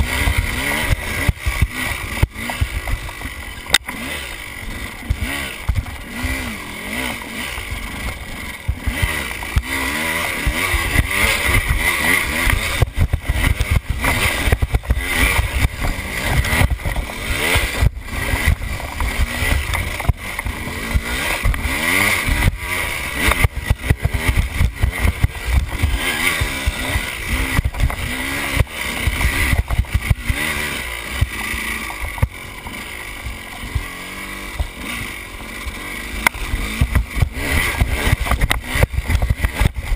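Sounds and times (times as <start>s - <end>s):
dirt bike engine revving: 0.0s - 39.9s
sharp knocks from bike: 23.2s - 30.5s, 36.2s - 39.9s.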